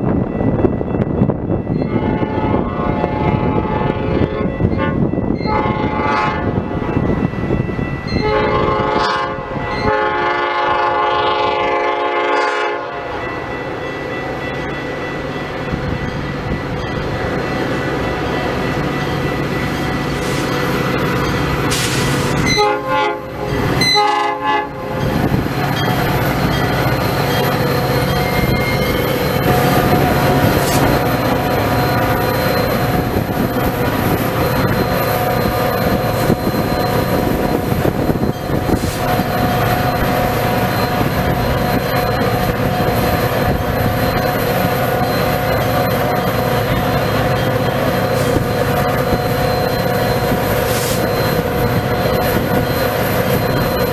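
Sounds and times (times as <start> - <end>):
train rolling in: 0.0 - 53.9
train horn blasts: 1.8 - 7.0, 8.2 - 13.3, 21.7 - 25.2.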